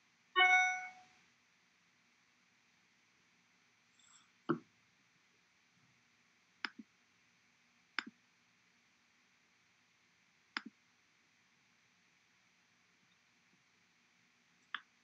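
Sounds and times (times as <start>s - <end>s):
faint room hum: 0.0s - 15.0s
computer mouse clicks: 6.6s - 6.9s, 10.6s - 10.8s.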